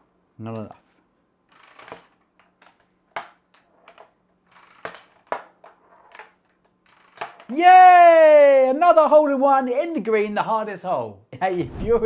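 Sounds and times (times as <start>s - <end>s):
small balls bouncing on wood: 1.5s - 7.6s
toy catapult being worked: 1.5s - 7.9s.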